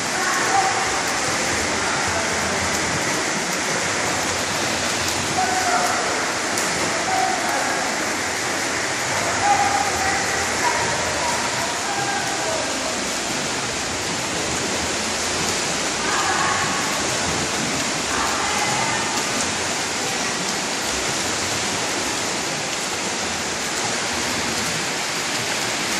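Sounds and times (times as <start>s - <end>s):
swimmers splashing: 0.0s - 25.9s.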